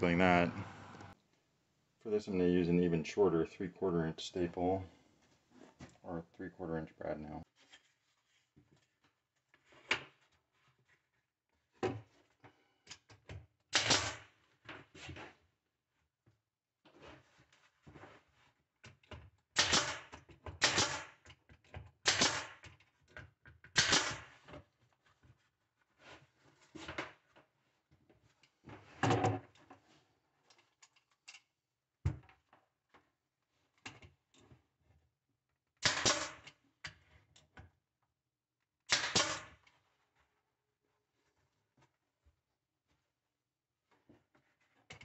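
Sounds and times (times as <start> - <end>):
nail gun pop with air hiss: 13.8 - 14.2, 19.6 - 20.0, 20.6 - 21.1, 22.1 - 22.5, 35.8 - 36.3, 38.9 - 39.5.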